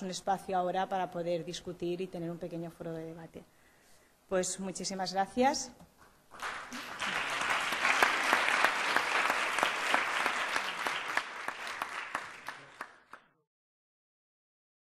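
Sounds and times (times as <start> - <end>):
audience applauding: 6.3 - 13.3.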